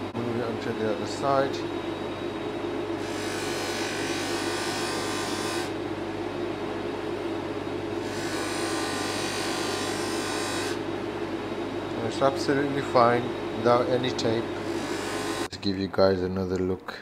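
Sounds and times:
polishing motor running: 3.0s - 5.8s, 8.0s - 10.9s, 12.6s - 15.5s.

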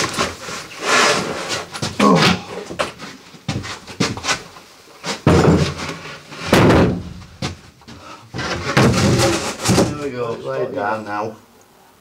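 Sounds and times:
wooden board scraping: 0.0s - 7.5s, 8.3s - 10.4s.

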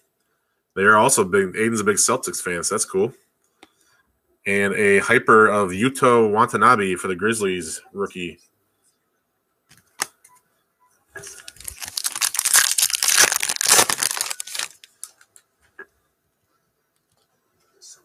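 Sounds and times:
foil wrapper tearing and crinkling: 11.3s - 15.3s.

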